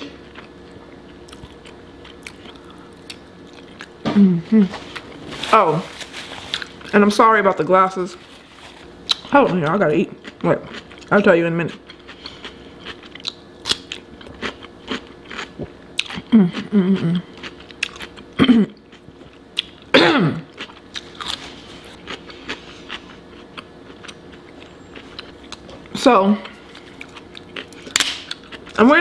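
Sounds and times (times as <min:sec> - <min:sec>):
crunchy chewing of cucumber: 0:00.1 - 0:04.0, 0:06.0 - 0:06.9, 0:08.4 - 0:28.8
person humming: 0:04.1 - 0:04.8, 0:16.3 - 0:17.3.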